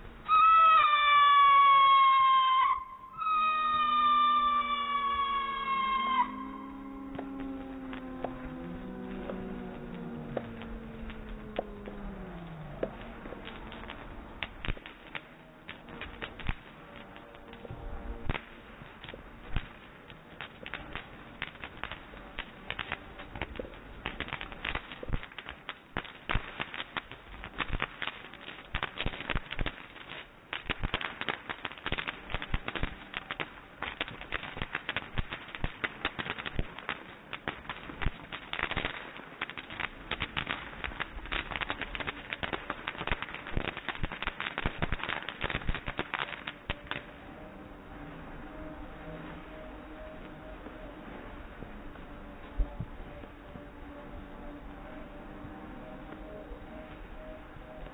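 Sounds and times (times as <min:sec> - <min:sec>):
firework bangs: 0:00.0 - 0:54.4
fireworks crackling: 0:00.0 - 0:57.9.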